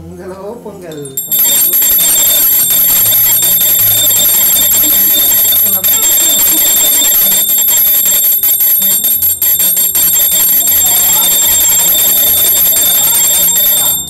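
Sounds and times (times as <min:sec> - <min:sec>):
hand bell ringing rapidly: 0:01.0 - 0:14.0.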